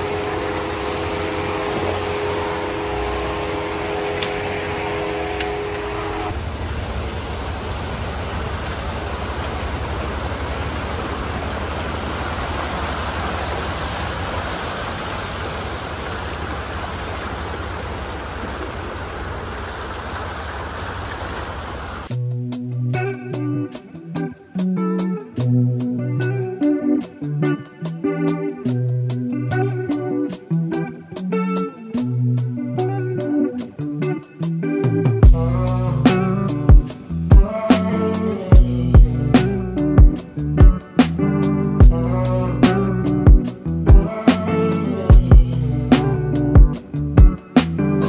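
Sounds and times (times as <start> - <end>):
water rushing: 0.0 - 22.1
steady multi-tone whine: 0.0 - 22.2, 35.2 - 42.0
low rumble: 35.2 - 37.6, 38.4 - 40.7, 41.8 - 44.1, 45.1 - 47.2.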